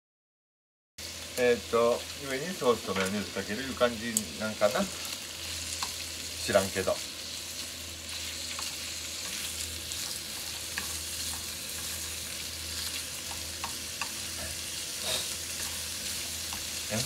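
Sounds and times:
meat sizzling in a frying pan: 1.0 - 17.0
chopsticks clicking against pan: 13.2 - 14.2.

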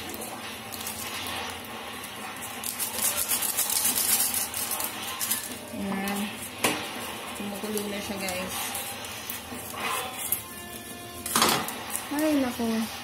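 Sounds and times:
plastic packet crinkling: 2.4 - 6.3.

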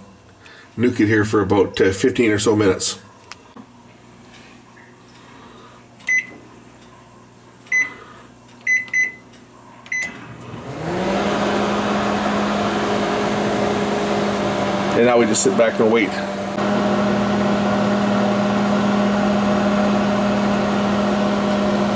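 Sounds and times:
microwave humming with fan noise: 0.0 - 21.9
microwave keypad beeps: 6.1 - 6.4, 7.7 - 8.0, 8.6 - 9.3, 9.9 - 10.2.

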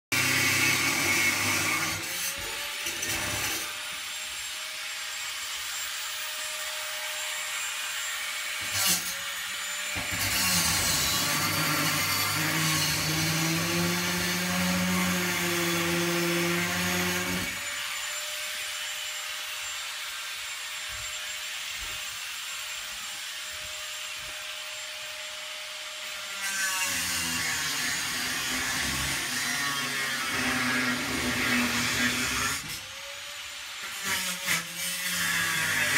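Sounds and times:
angle grinder whining: 0.1 - 35.9.

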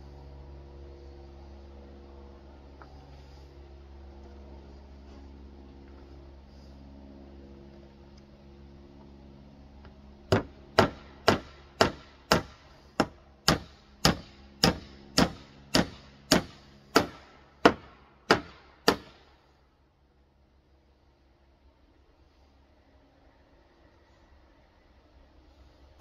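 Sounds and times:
hammer nailing wood: 10.3 - 19.2.

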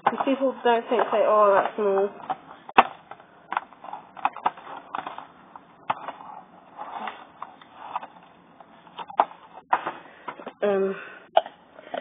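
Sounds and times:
scratchy rustling on plastic: 3.6 - 9.7.

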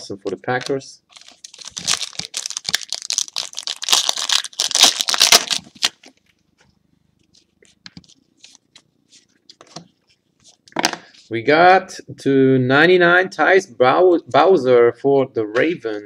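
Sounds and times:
plastic wrapper tearing and crinkling: 0.6 - 6.2.

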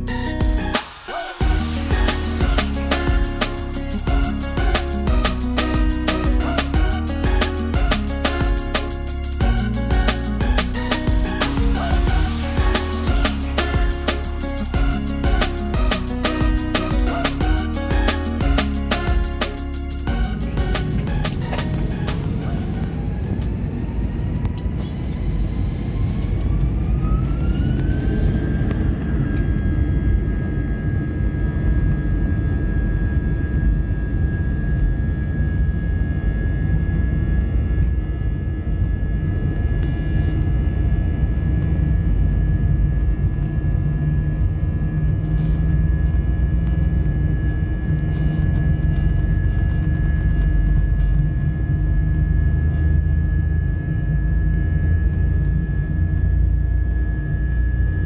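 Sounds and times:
jet engine whine: 19.2 - 58.0.

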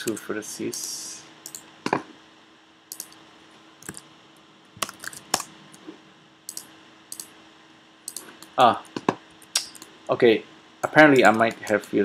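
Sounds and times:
faint steady hum: 0.0 - 12.0
keyboard keystrokes and mouse clicks: 1.4 - 2.0, 2.9 - 3.2, 3.8 - 4.0, 4.8 - 5.9, 6.5 - 7.3, 8.1 - 9.9, 11.2 - 12.0.

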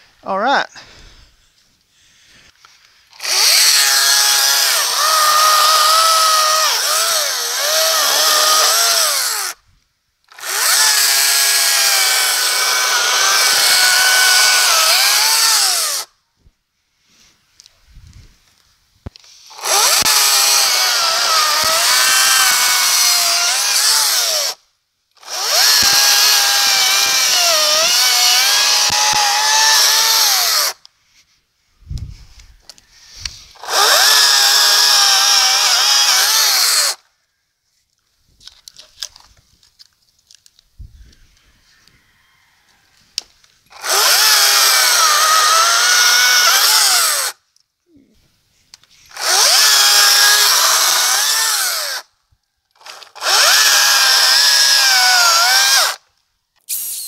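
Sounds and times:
electric chainsaw cutting log: 3.1 - 9.6, 10.3 - 16.1, 19.5 - 24.6, 25.2 - 30.8, 33.5 - 37.0, 43.7 - 47.4, 49.1 - 52.1, 52.8 - 56.0.

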